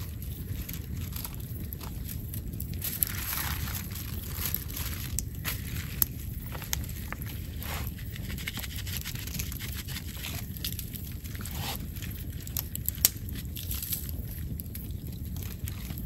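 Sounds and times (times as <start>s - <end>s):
steady low rumble: 0.0s - 16.0s
hands handling raw chicken on foil: 2.8s - 12.2s.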